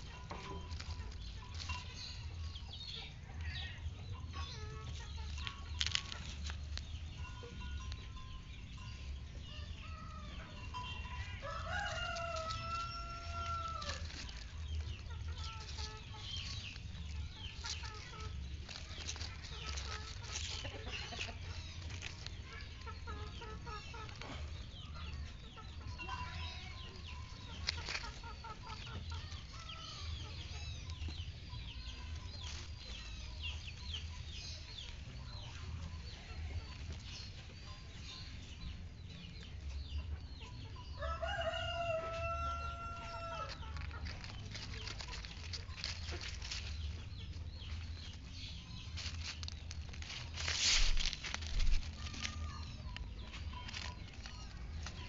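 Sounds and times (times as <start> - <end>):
birds chirping: 0.0 - 55.0
rooster crowing: 11.2 - 14.1, 41.0 - 43.6.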